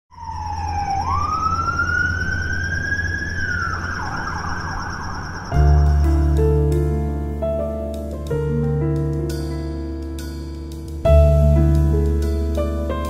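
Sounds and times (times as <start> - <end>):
emergency siren wailing: 0.1 - 7.0
low city hum: 0.1 - 13.0
piano: 0.1 - 13.0
double bass: 5.6 - 13.0.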